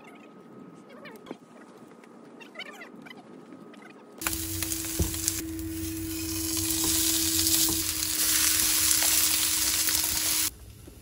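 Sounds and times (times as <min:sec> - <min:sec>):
food sizzling in a frying pan: 0:04.2 - 0:10.5.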